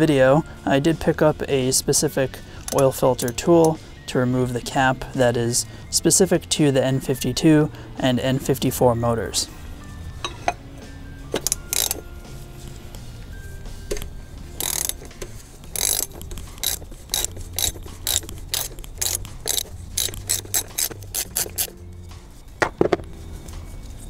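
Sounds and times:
ratchet wrench clicking: 2.7 - 3.8, 11.4 - 12.0, 13.9 - 21.8.

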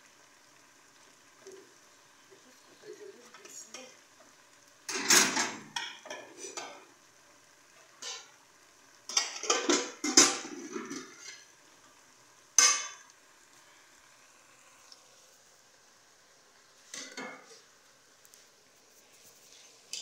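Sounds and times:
metal pots clattering: 4.9 - 6.8, 8.0 - 8.4, 9.1 - 11.5, 12.6 - 13.1, 16.8 - 17.6.

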